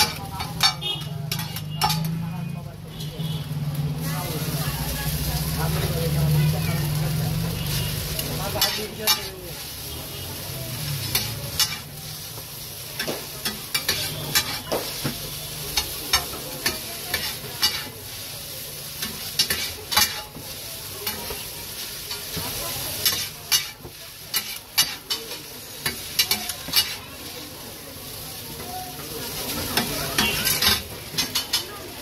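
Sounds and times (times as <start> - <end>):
metal spatulas clacking on griddle: 0.0 - 2.2, 8.4 - 9.4, 11.0 - 11.9, 13.0 - 17.9, 19.0 - 20.4, 22.1 - 27.0, 29.5 - 31.8
noodles sizzling: 0.0 - 32.0.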